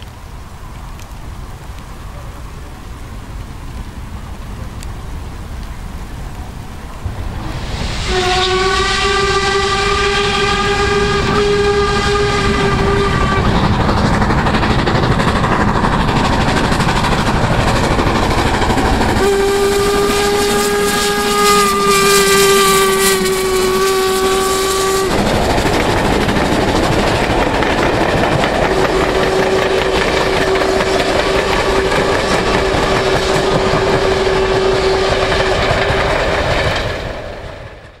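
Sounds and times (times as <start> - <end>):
steam train passing: 0.0 - 38.0
steam whistle blasts: 7.5 - 13.6, 19.2 - 25.3, 28.7 - 35.9
wheels clattering on rails: 10.4 - 38.0.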